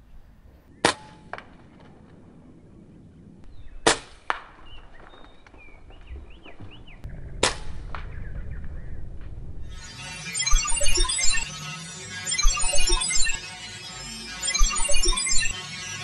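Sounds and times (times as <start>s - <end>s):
air rifle shots: 7.4s - 8.1s.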